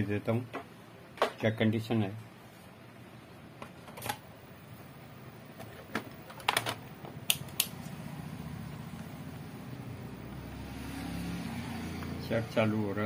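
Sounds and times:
low steady hum: 0.0s - 10.9s
test probes clicking and tapping: 5.9s - 8.0s.

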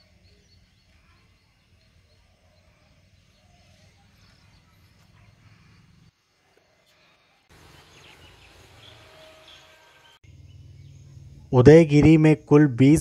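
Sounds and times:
low hum: 10.2s - 12.9s.

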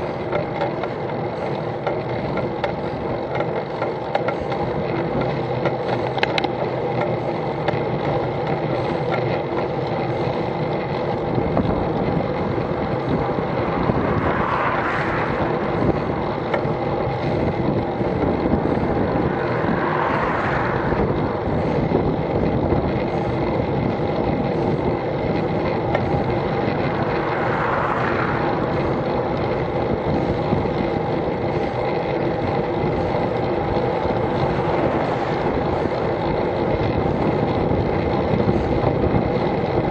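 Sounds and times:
wind and road noise: 0.0s - 39.9s
cars swishing past: 13.4s - 16.4s, 18.4s - 21.9s, 26.6s - 30.2s, 34.1s - 36.4s.

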